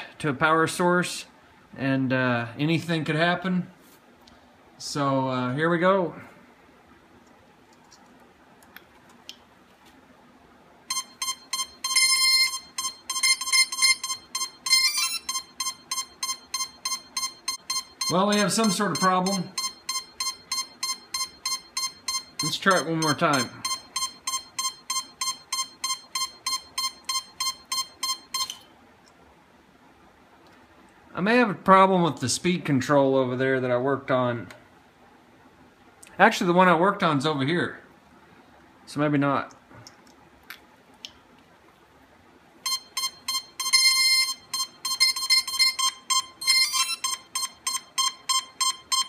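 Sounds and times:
rapid electronic beeps: 10.9s - 28.6s, 42.7s - 49.0s.

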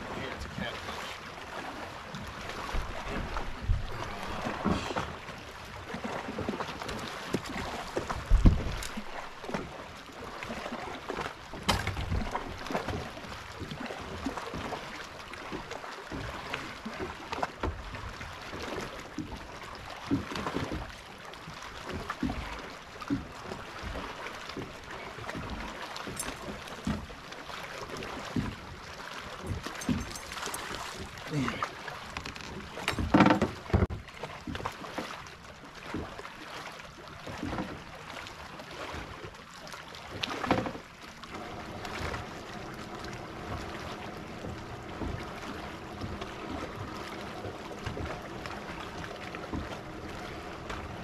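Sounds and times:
water lapping against boat hull: 0.0s - 51.0s
wind on microphone: 2.8s - 5.0s, 8.2s - 8.9s.

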